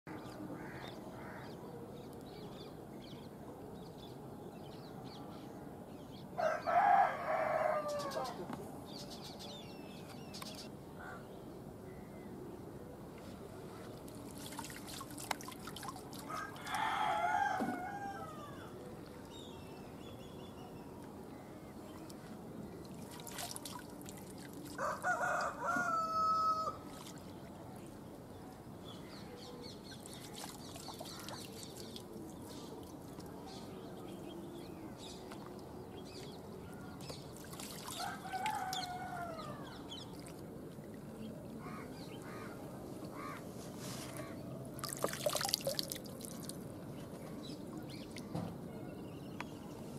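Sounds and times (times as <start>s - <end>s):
roosters crowing: 6.4s - 8.4s, 16.3s - 18.6s, 24.8s - 26.8s
water trickling and dripping: 13.9s - 16.9s, 21.9s - 24.8s, 29.9s - 33.6s, 37.0s - 39.0s, 44.7s - 48.6s.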